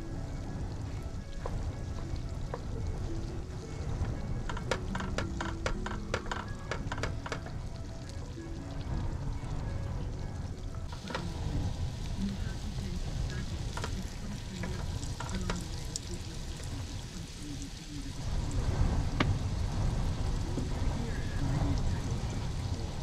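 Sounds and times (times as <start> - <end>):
scone sizzling in a pan: 10.8 - 23.0.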